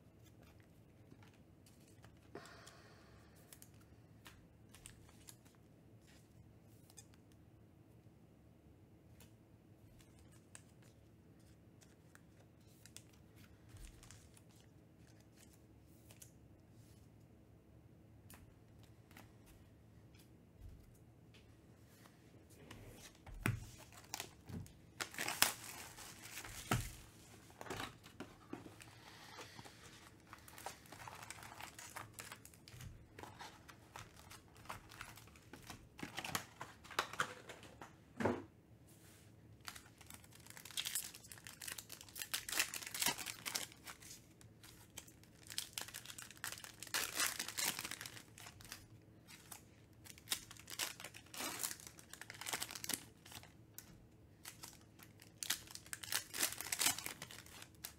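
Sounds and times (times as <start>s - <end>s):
foil packs crinkling and tearing: 23.8s - 28.0s, 29.4s - 37.2s, 39.6s - 53.5s, 54.4s - 57.9s.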